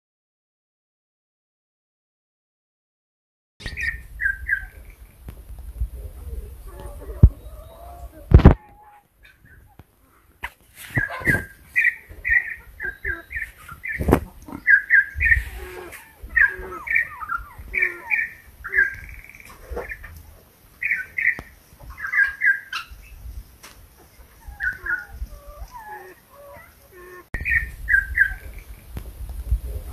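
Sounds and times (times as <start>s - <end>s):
bird singing whistled notes: 3.6s - 4.9s, 27.4s - 28.7s.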